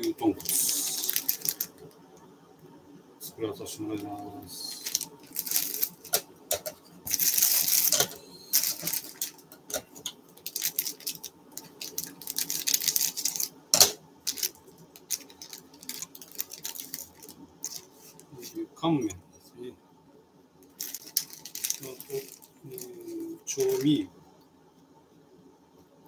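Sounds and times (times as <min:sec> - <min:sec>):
plastic packaging crinkling: 0:00.0 - 0:02.0, 0:04.0 - 0:18.6, 0:20.7 - 0:24.0.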